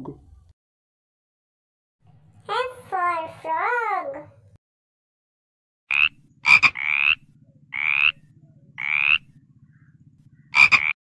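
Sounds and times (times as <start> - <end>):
frog croaking: 5.9 - 11.0.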